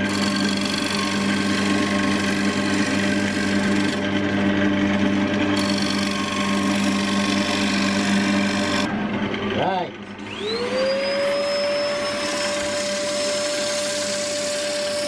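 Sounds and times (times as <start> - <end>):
turning tool rasping on wood: 0.0 - 4.4, 5.1 - 8.9, 12.2 - 15.0
lathe motor hum: 0.0 - 15.0.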